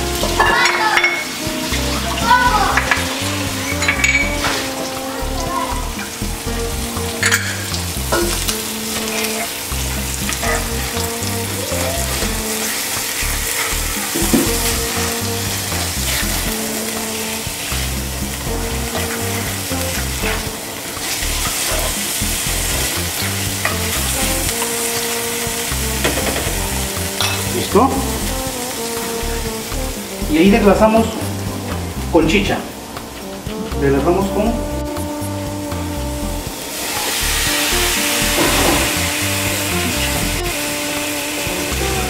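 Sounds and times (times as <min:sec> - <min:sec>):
food sizzling in oil: 0:00.0 - 0:33.8, 0:34.6 - 0:42.0
background music with low notes: 0:00.0 - 0:42.0.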